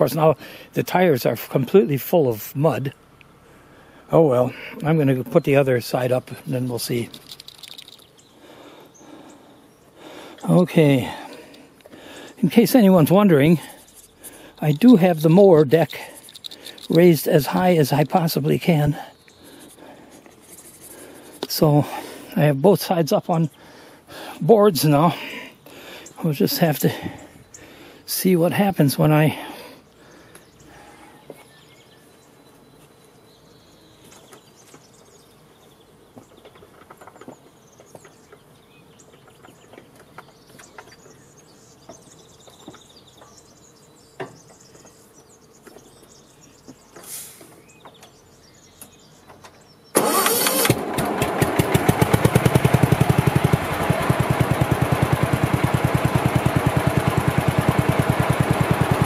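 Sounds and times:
riding mower engine running: 0:00.0 - 0:29.3, 0:49.9 - 0:59.0
faint knocks and rustles: 0:36.1 - 0:38.4.

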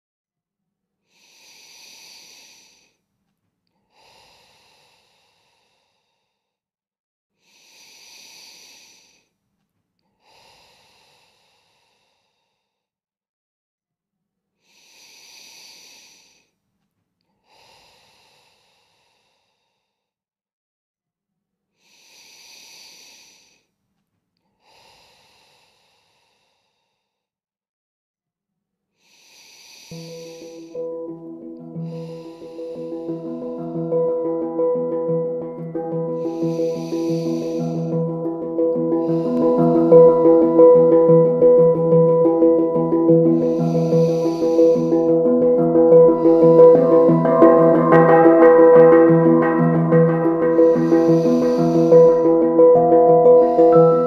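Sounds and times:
person breathing slowly and deeply: 0:03.9 - 0:06.3, 0:29.2 - 0:48.7.

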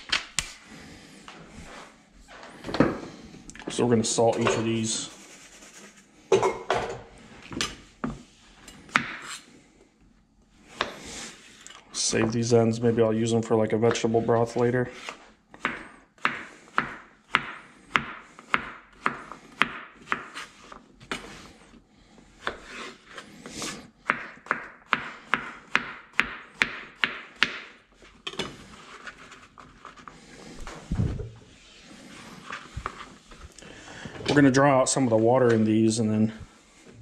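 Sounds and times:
knife chopping on plastic board: 0:15.0 - 0:20.5, 0:24.0 - 0:27.8.

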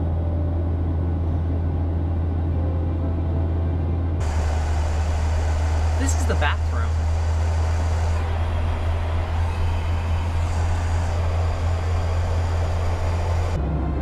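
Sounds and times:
low drone of jet engines: 0:00.0 - 0:14.0
rushing airflow hiss: 0:04.2 - 0:13.6.

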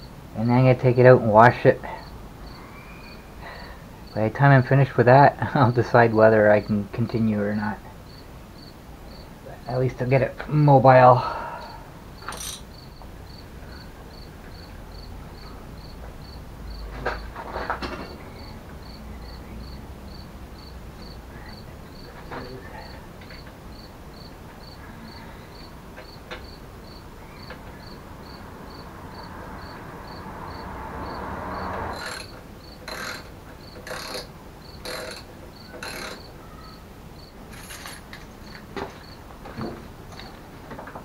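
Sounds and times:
cricket chirping: 0:01.9 - 0:04.2, 0:08.1 - 0:09.8, 0:11.4 - 0:39.2.

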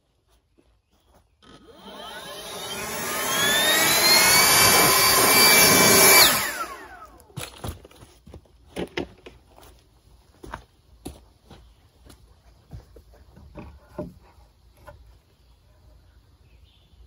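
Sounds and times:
power tool whining: 0:01.4 - 0:07.5.

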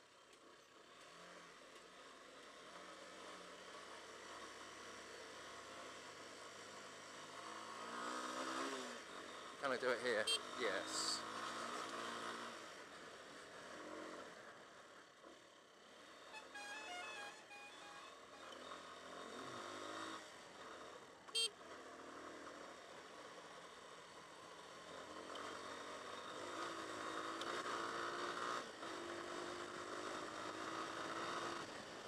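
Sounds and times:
horn beeps: 0:10.1 - 0:11.2, 0:16.3 - 0:18.7, 0:21.3 - 0:21.6
motorcycle engine accelerating: 0:24.6 - 0:32.0.

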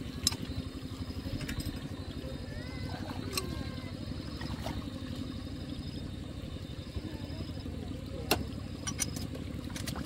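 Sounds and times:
diesel tractor engine idling: 0:00.0 - 0:10.0.

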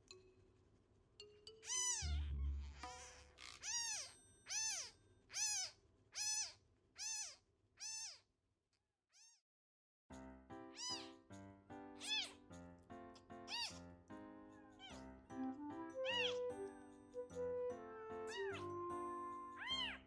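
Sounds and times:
kitten mewing: 0:03.6 - 0:08.2, 0:10.8 - 0:11.1, 0:12.0 - 0:12.4, 0:13.5 - 0:13.8, 0:18.2 - 0:18.7.

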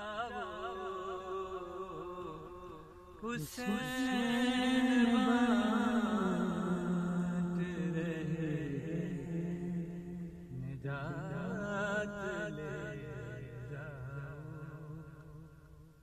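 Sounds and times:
man singing unaccompanied: 0:00.0 - 0:15.7.

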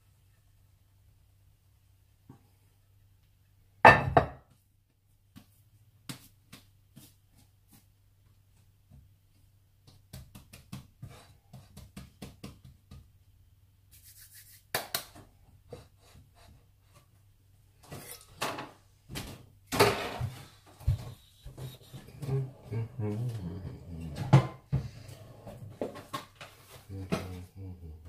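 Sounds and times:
hands patting bread dough: 0:04.4 - 0:13.4.

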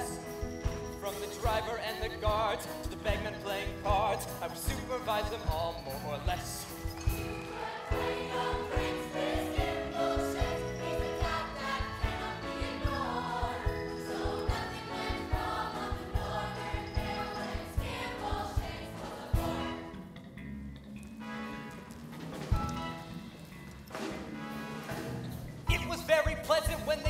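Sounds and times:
chorus singing with band: 0:06.8 - 0:20.1.

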